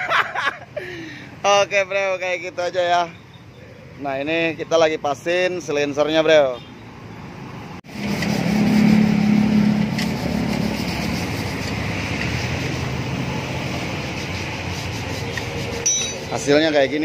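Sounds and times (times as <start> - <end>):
traffic rumble: 0.0 - 17.0
vehicle passing close: 7.1 - 17.0.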